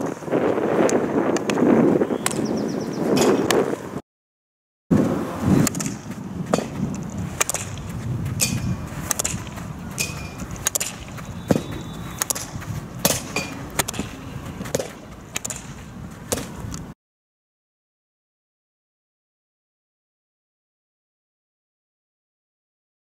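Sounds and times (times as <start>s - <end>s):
hockey stick striking ball: 3.1s - 3.6s, 5.6s - 16.6s.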